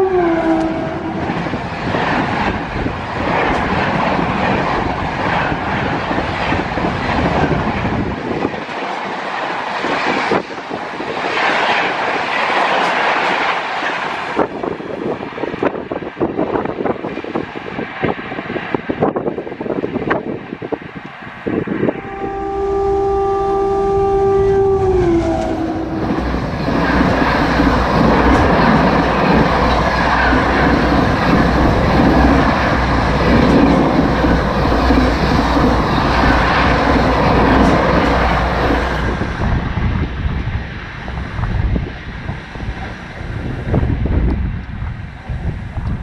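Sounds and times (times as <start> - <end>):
train horn chord: 0.0 - 1.6, 21.7 - 39.4
train wheels on rail: 0.0 - 46.0.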